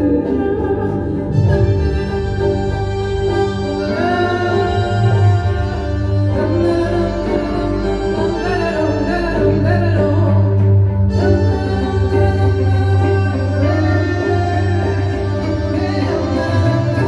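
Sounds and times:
gliding melodic line: 0:00.0 - 0:17.0.

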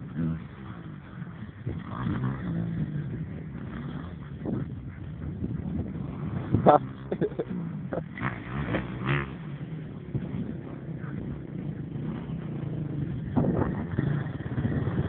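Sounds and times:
motorcycle engine running: 0:00.0 - 0:15.0
dirt bike engine firing: 0:05.4 - 0:15.0.

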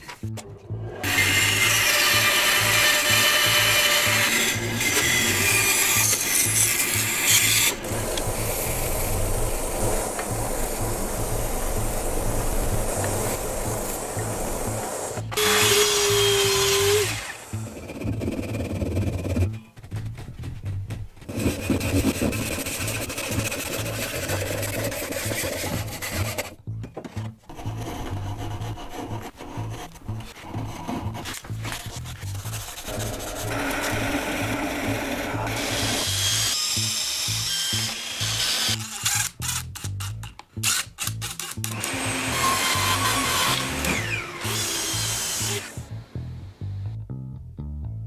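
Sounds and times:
background music with bass: 0:00.0 - 0:15.4, 0:16.0 - 0:38.4, 0:39.2 - 0:48.0
gouge scraping wood: 0:21.3 - 0:26.6, 0:27.5 - 0:34.1
hand saw sawing wood: 0:21.3 - 0:26.6, 0:27.5 - 0:36.5, 0:41.8 - 0:45.8
power tool running on plastic: 0:41.6 - 0:45.8.

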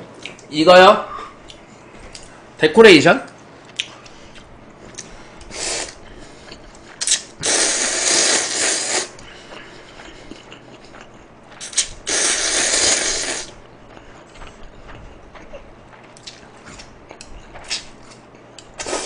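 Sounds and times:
man slurping noodles: 0:05.5 - 0:06.0, 0:07.0 - 0:09.2, 0:11.6 - 0:13.6, 0:18.8 - 0:19.0.

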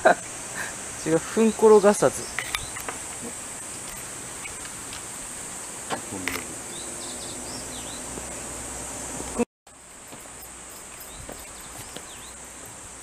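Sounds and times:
high-pitched insect chorus: 0:00.0 - 0:08.6, 0:09.7 - 0:13.0
short chirping calls: 0:01.4 - 0:04.8, 0:06.1 - 0:08.1, 0:10.8 - 0:12.8.

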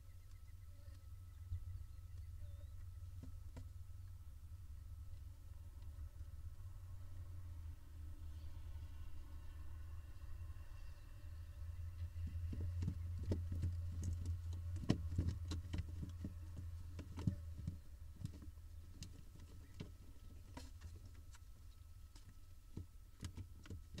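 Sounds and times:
low steady hum: 0:00.0 - 0:24.0
owl chicks scratching in nest box: 0:12.0 - 0:24.0.

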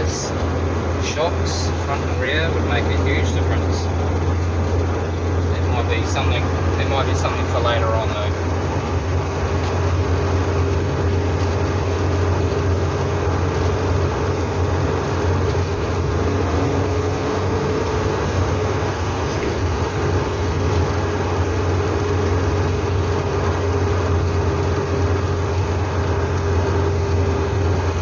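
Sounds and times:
car engine droning: 0:00.0 - 0:28.0
constant hum: 0:00.0 - 0:28.0.

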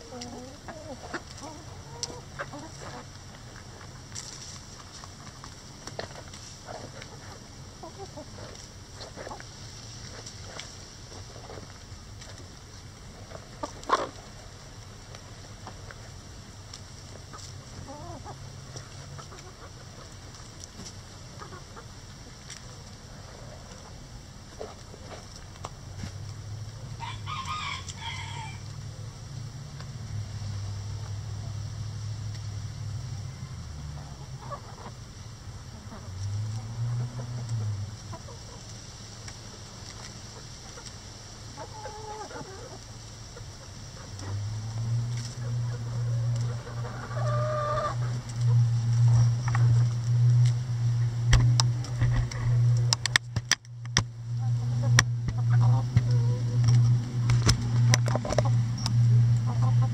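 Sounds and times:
hens clucking: 0:00.0 - 0:11.8, 0:13.2 - 0:15.8, 0:17.0 - 0:25.8, 0:34.1 - 0:50.1, 0:54.4 - 0:59.9
low steady rumble: 0:00.0 - 0:59.9
hen drawn-out call: 0:27.0 - 0:28.7, 0:45.4 - 0:48.6
low hum: 0:42.8 - 0:59.9.

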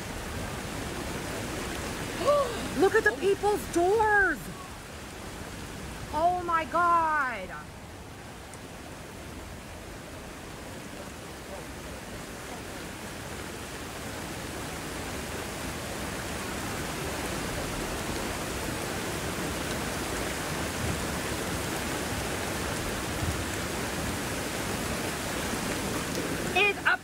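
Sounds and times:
floodwater rushing: 0:00.0 - 0:27.0
heavy rain: 0:00.0 - 0:27.0.

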